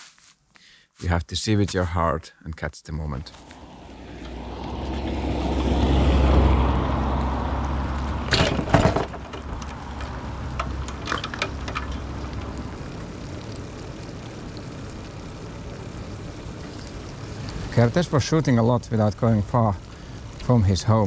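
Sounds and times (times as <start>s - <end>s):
car passing on wet road: 3.3s - 20.9s
tyres hissing on wet asphalt: 3.3s - 21.0s
loud clatter: 8.3s - 12.0s.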